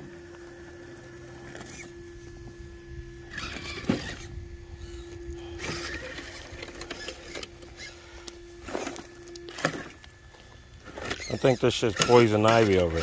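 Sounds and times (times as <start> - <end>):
thin motor whine: 0.0 - 13.0
tires scrabbling on stones: 3.2 - 13.0.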